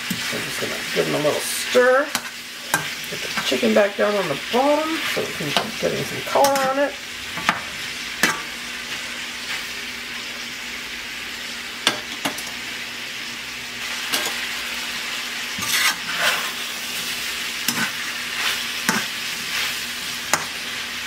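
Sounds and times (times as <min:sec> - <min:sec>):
food sizzling in a wok: 0:00.0 - 0:21.0
metal spatula scraping pan: 0:15.6 - 0:20.6.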